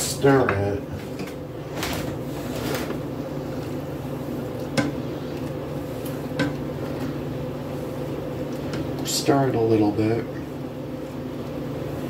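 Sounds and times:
pasta stirred in boiling water: 0.0 - 9.3
steady hum: 0.0 - 12.0.

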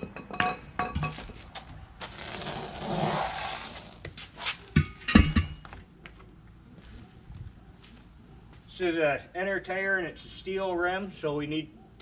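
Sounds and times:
tire rubbing and scraping: 1.1 - 5.8.

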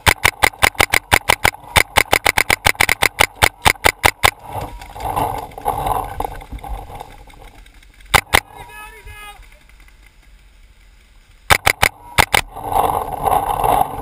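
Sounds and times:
paintball marker firing rapidly: 0.0 - 5.2, 8.1 - 8.6, 11.5 - 12.5
rustling and movement: 0.0 - 14.0.

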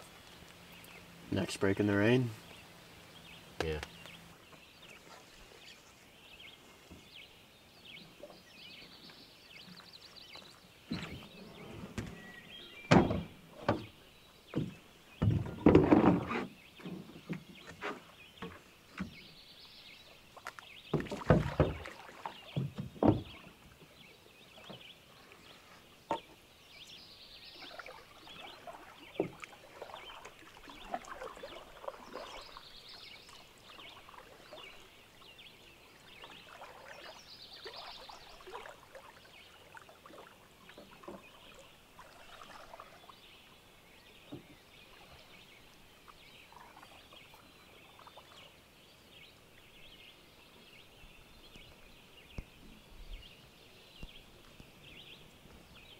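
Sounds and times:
paddle strokes splashing water: 2.0 - 7.3, 7.9 - 55.9
knocks against wooden canoe hull: 12.9 - 19.3, 20.9 - 23.5, 26.1 - 26.4, 29.2 - 29.5.

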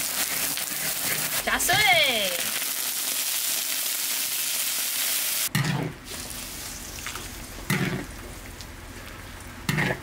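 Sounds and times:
water sizzling in hot wok: 0.0 - 5.5.

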